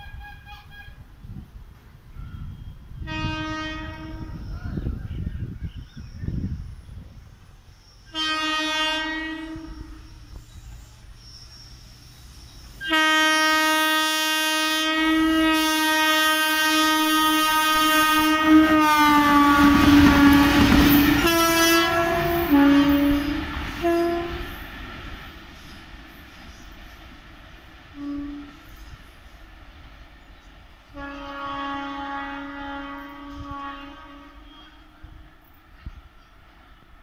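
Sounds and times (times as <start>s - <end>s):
locomotive horn blasts: 0.0s - 1.2s, 2.1s - 4.6s, 8.1s - 10.3s, 12.8s - 24.6s, 28.0s - 28.8s, 30.9s - 35.2s
train wheels clattering over rails: 19.1s - 31.0s.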